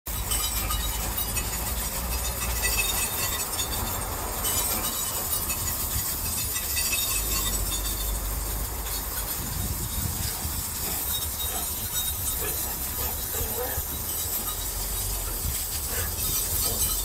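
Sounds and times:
car road noise rumble and hiss: 0.2s - 17.0s.

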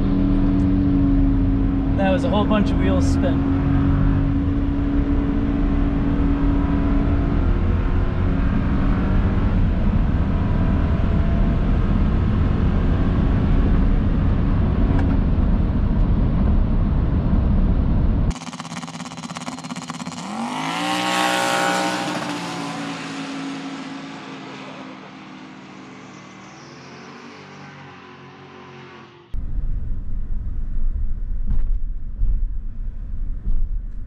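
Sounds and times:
vehicle passing by: 20.2s - 29.4s
pickup truck engine rumble: 29.3s - 34.0s.

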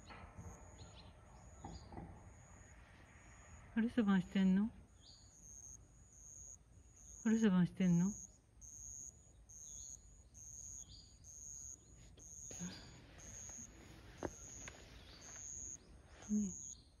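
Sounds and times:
faint bird chirps: 0.0s - 17.0s
insect calling in pulses: 5.4s - 16.8s.

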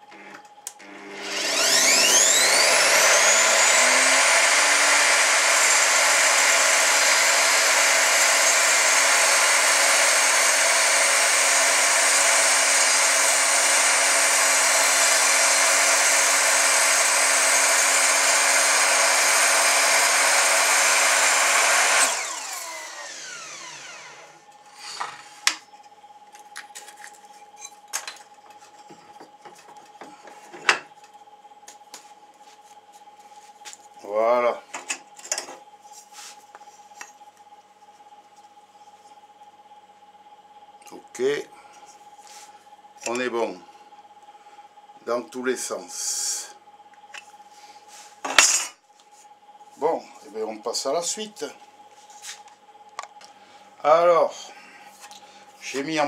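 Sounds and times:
miter saw whining: 0.0s - 25.9s
saw cutting wooden block: 0.8s - 25.2s.

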